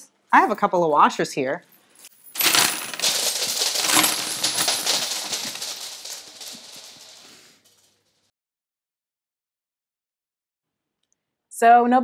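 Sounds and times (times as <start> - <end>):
metal washers clattering on table: 2.0 - 7.8.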